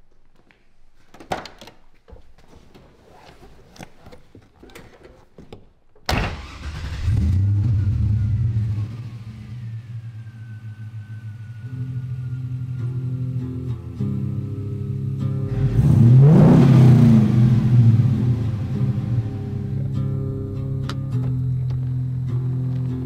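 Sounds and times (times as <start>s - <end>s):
car engine starting and idling: 6.1s - 23.0s
faint high whine: 7.5s - 15.5s, 17.6s - 23.0s.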